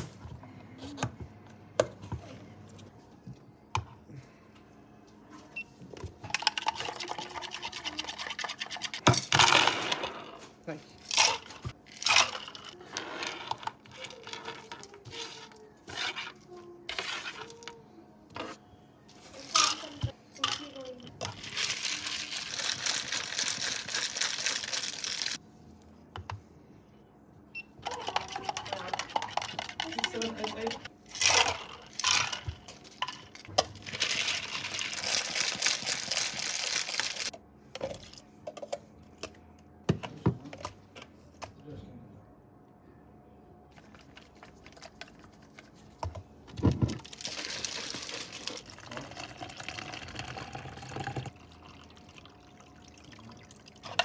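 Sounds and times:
ice rattling in shaker cup: 0:06.3 - 0:09.0, 0:19.4 - 0:25.4, 0:27.8 - 0:37.3, 0:47.0 - 0:54.0.

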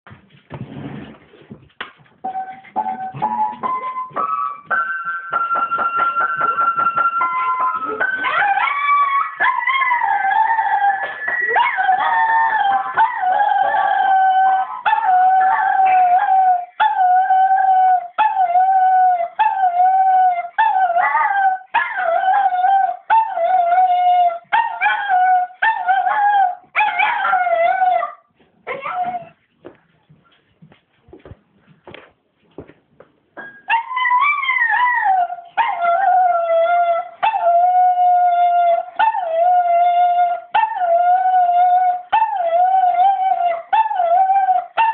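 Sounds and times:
piano notes: 0:02.2 - 0:08.5
dog howling: 0:07.1 - 0:29.4, 0:33.7 - 0:44.9.

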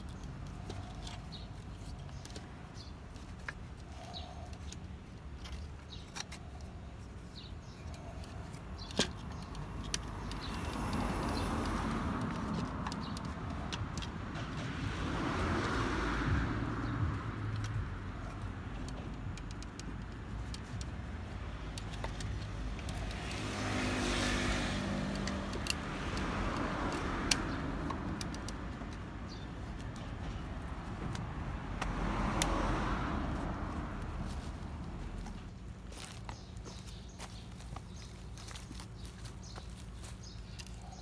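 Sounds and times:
sharp clicks: 0:07.6 - 0:34.2.

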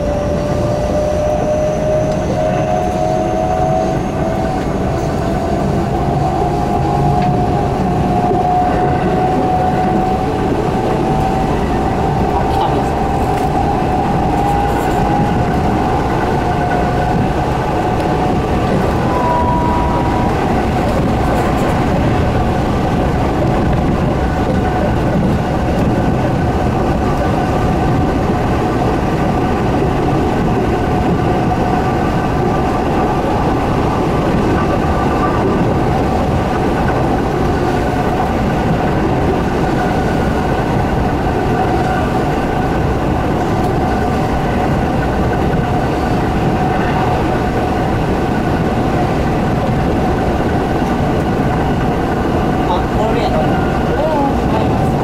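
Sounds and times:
steady whine of train: 0:00.0 - 0:55.0
train running rumble: 0:00.0 - 0:55.0
brief high tone: 0:19.0 - 0:20.5.

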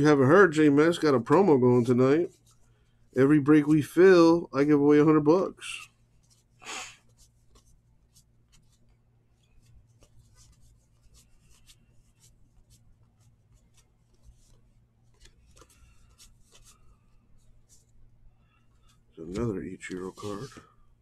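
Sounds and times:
cards rubbing and ticking: 0:05.6 - 0:18.0, 0:18.6 - 0:20.7.

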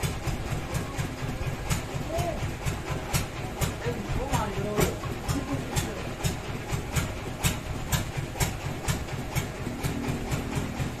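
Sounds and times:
engine chugging with ticks: 0:00.0 - 0:11.0.

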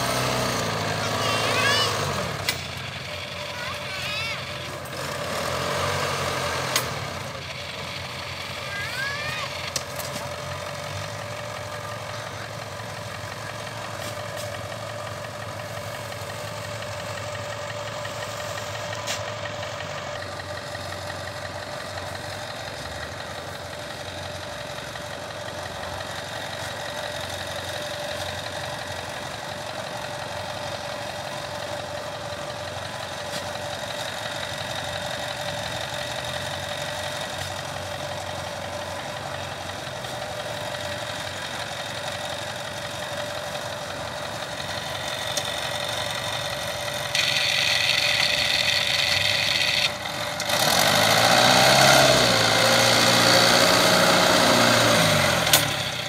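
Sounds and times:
diesel engine droning: 0:00.0 - 0:56.0.

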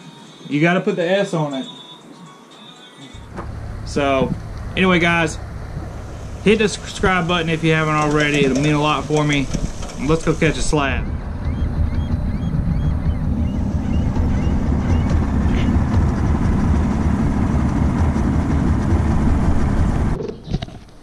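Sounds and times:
water rushing: 0:03.2 - 0:11.2
outboard motor running: 0:03.2 - 0:20.2.

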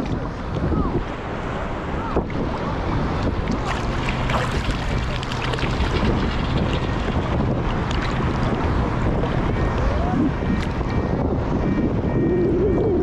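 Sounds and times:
water splashing and sloshing: 0:00.0 - 0:11.0
strong wind buffeting microphone: 0:00.0 - 0:13.0
shallow sea water moving: 0:02.8 - 0:09.5.

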